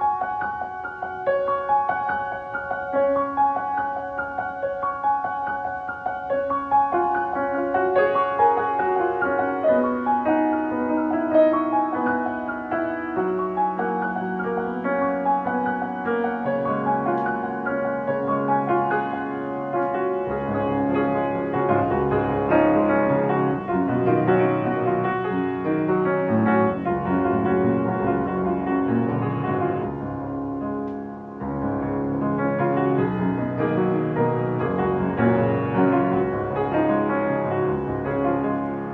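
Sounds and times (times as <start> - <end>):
piano music: 0.0 - 38.9.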